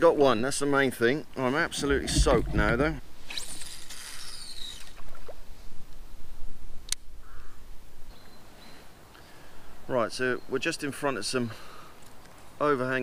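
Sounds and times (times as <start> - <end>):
wind rumble on microphone: 1.8 - 3.1
fishing line whirring off spool: 3.2 - 5.2.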